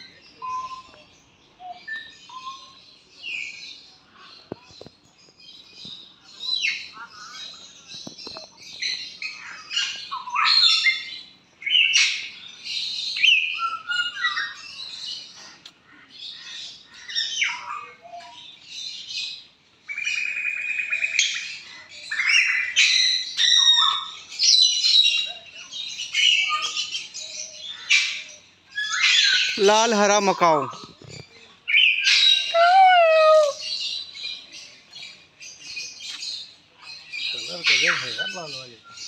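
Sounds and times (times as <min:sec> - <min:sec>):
parrots squawking and whistling: 0:28.8 - 0:29.8, 0:31.7 - 0:34.0.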